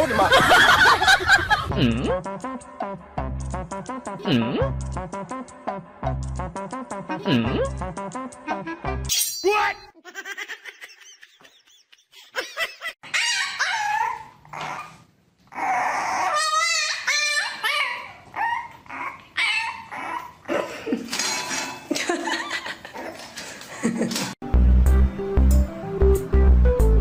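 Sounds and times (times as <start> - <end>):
puppy barking and yelping: 13.0 - 20.5
dog whining: 13.0 - 20.6
dog warbling cry: 13.0 - 20.7.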